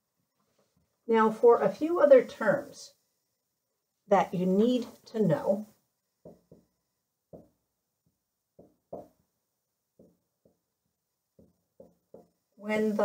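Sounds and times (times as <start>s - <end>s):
marker writing on whiteboard: 6.2s - 7.6s, 10.0s - 10.7s, 11.3s - 13.0s.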